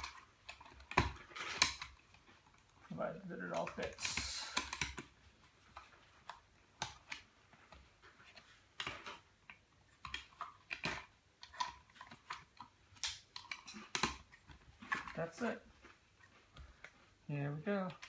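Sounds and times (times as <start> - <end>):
hands handling small computer: 3.5 - 17.2.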